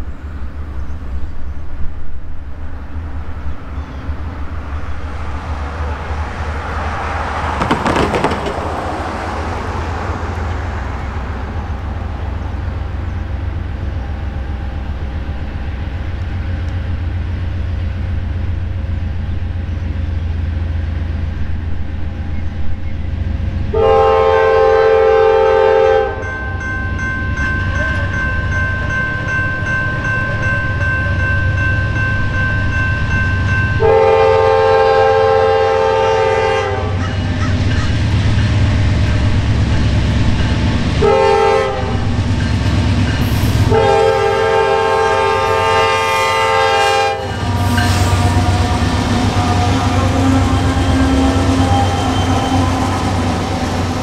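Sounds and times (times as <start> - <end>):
train rumble: 0.0 - 54.0
locomotive horn blasts: 23.7 - 26.3, 33.8 - 37.3, 41.0 - 42.1, 43.6 - 53.9.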